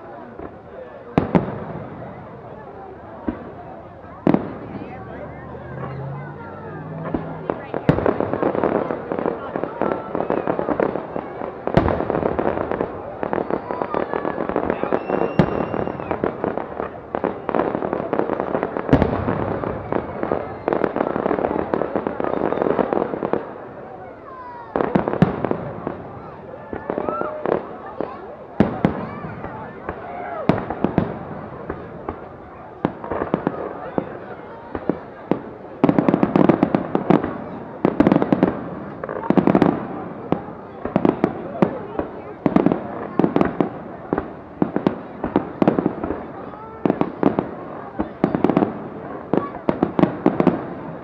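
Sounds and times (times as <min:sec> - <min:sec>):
fireworks bursting: 0:00.0 - 0:51.0
heavy firework boom: 0:00.4 - 0:23.6.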